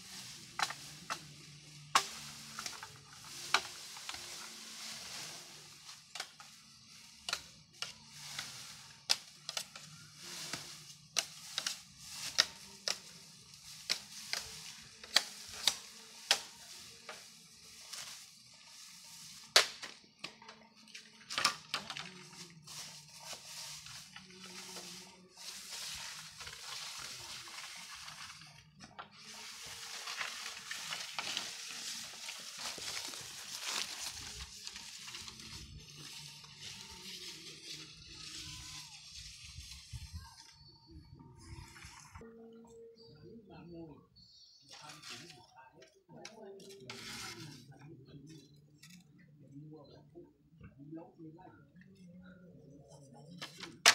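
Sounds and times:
poles scraping over dry leaves: 0:00.0 - 0:40.6, 0:46.4 - 0:47.7
bamboo poles cracking and knocking: 0:00.2 - 0:37.8, 0:53.2 - 0:53.9.

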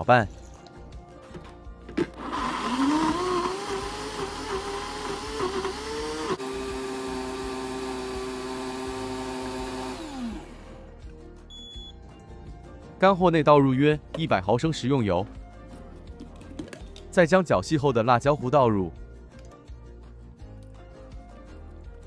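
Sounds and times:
blender motor whining: 0:02.1 - 0:10.9.

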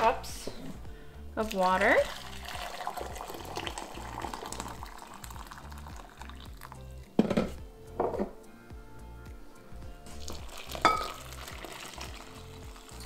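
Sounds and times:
quiet background music: 0:00.0 - 0:13.0
water pouring into glass cup: 0:01.4 - 0:07.1, 0:10.1 - 0:13.0.

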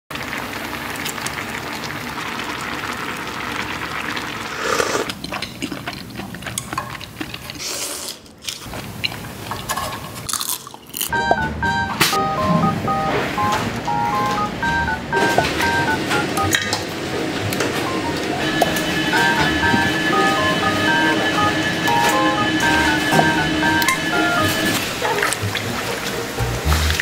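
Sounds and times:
broth simmering and bubbling: 0:00.1 - 0:07.6
background music bright notes: 0:11.1 - 0:16.8, 0:17.4 - 0:27.0.

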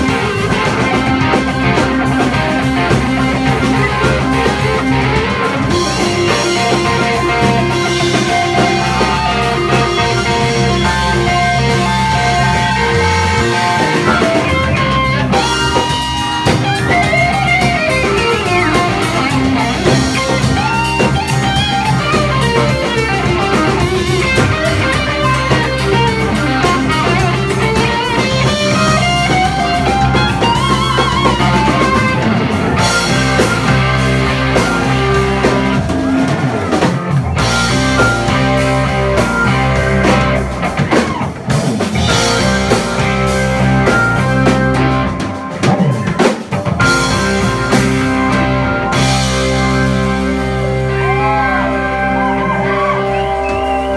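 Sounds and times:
drum kit: 0:00.0 - 0:53.9
electric guitar solo: 0:00.0 - 0:53.9.

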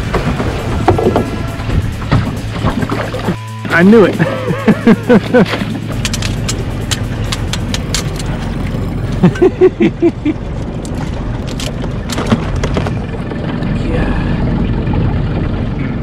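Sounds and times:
boat motor humming: 0:00.0 - 0:16.0
crab tongs clicking and clattering: 0:05.9 - 0:08.5.

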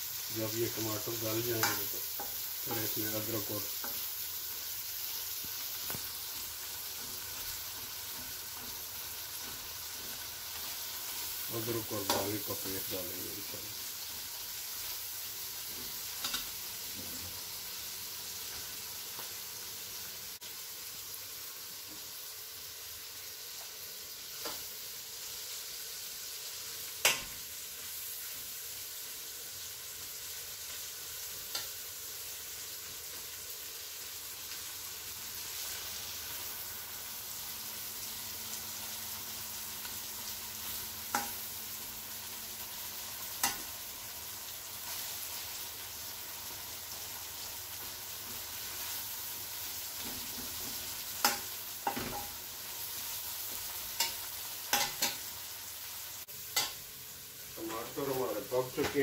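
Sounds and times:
onions sizzling in pan: 0:00.0 - 0:59.0
metal spoon clinking on pan: 0:41.1 - 0:41.4, 0:54.0 - 0:55.2, 0:56.6 - 0:56.8.

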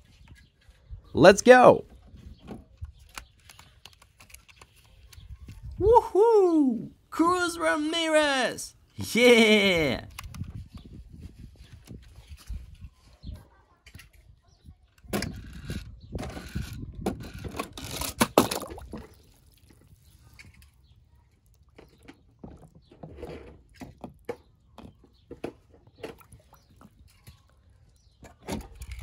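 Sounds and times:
water splashing and sloshing: 0:18.2 - 0:20.7.

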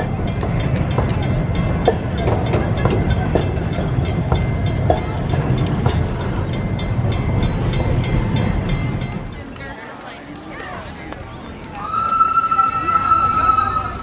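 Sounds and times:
crossing bell ringing rapidly: 0:00.0 - 0:09.6
train cars rumbling past: 0:00.0 - 0:14.0.

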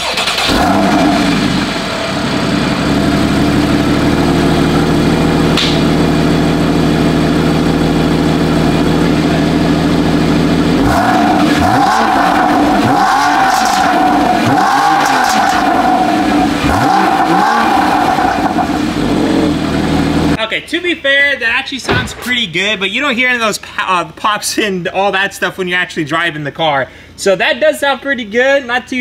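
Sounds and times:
car engine idling and revving: 0:00.0 - 0:20.4.

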